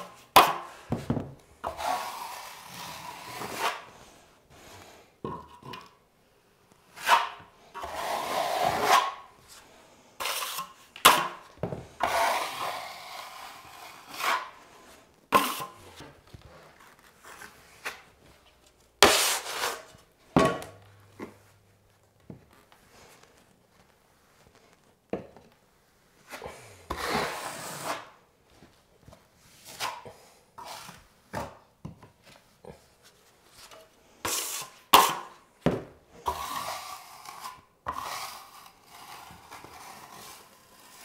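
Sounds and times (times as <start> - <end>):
drywall knife scraping compound: 0.0 - 5.0, 6.8 - 18.1, 19.0 - 21.5, 26.2 - 28.2, 29.4 - 31.6, 33.5 - 35.5, 36.1 - 41.0.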